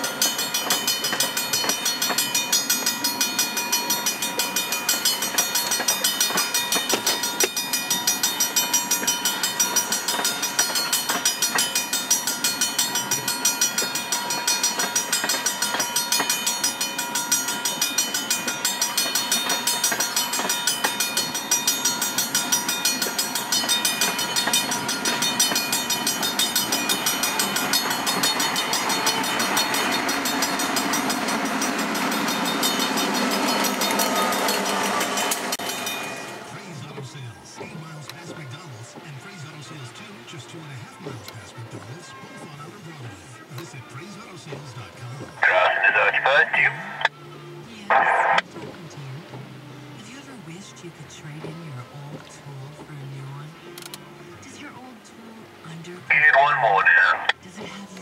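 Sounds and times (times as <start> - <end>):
train wheels clicking on rail joints: 0.0 - 36.2
crossing signal bell ringing: 0.0 - 36.8
diesel locomotive engine: 0.0 - 58.0.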